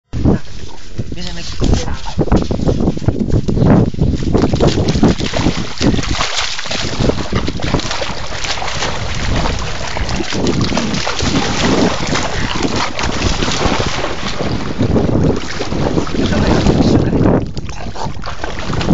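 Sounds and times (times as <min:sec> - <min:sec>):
low rumble on microphone: 0:00.1 - 0:18.9
dog splashing in river water: 0:04.0 - 0:18.9.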